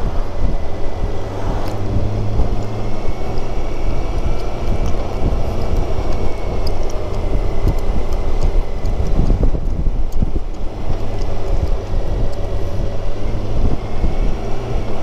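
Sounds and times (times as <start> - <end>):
motorcycle engine running: 0.0 - 15.0
wind rushing over microphone: 0.0 - 15.0.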